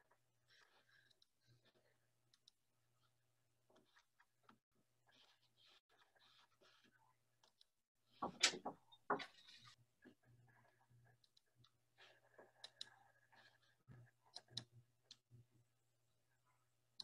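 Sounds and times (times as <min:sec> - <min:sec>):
knocks and clicks: 0:08.2 - 0:09.3.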